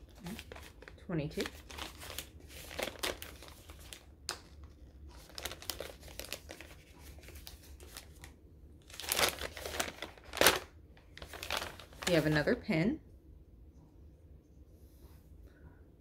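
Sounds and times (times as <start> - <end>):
gift wrapping crinkling and tearing: 0.0 - 12.6.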